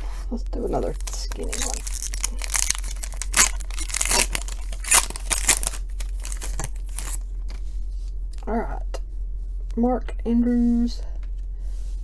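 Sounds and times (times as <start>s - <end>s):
foil wrapper tearing and crinkling: 0.8s - 7.2s.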